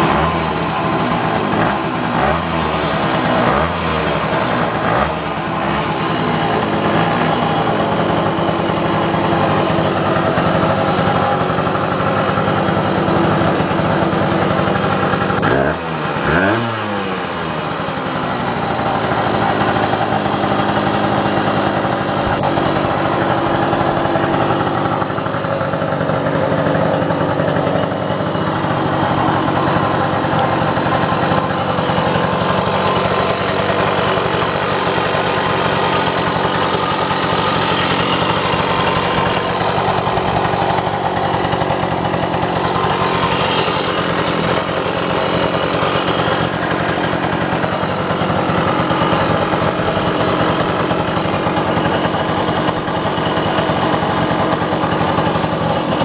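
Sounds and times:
moped engine idling: 0:00.0 - 0:56.0.

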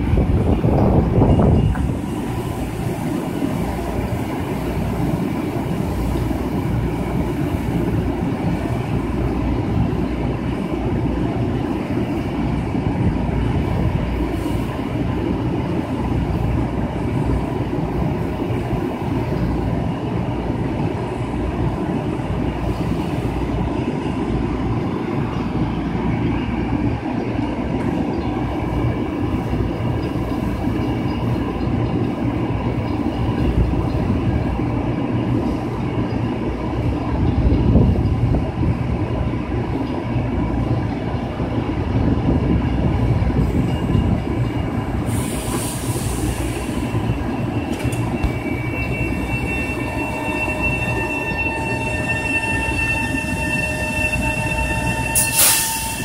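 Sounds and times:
electric train rumbling: 0:00.0 - 0:56.0.

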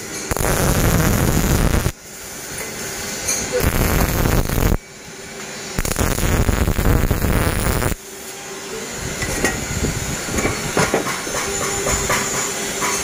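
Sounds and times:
steady hum: 0:00.0 - 0:02.4, 0:03.4 - 0:10.4
welding arc crackling: 0:00.3 - 0:02.0, 0:03.5 - 0:04.8, 0:05.8 - 0:08.0.

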